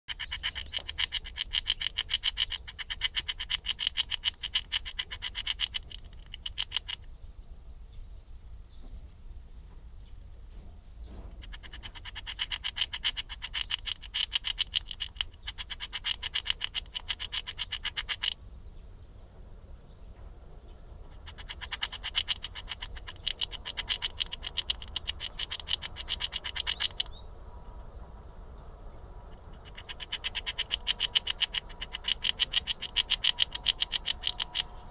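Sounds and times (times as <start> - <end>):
squirrel gnawing nut shell: 0.1 - 7.1, 11.3 - 18.4, 21.0 - 27.8, 29.1 - 34.9.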